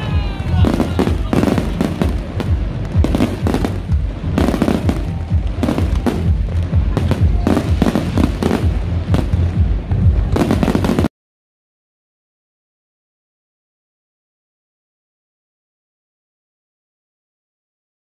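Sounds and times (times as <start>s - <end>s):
fireworks bangs: 0.0s - 11.1s
fireworks crackling: 0.0s - 11.1s.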